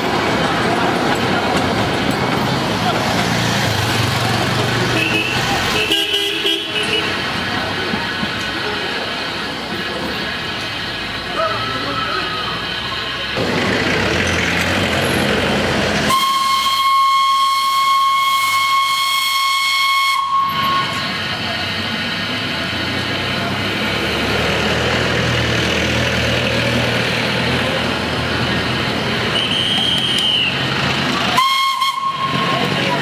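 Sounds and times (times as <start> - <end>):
locomotive steaming: 0.0 - 33.0
street rumble: 0.0 - 33.0
engine running: 6.8 - 17.0
steam whistle: 16.1 - 21.3, 29.3 - 30.6, 31.3 - 32.8.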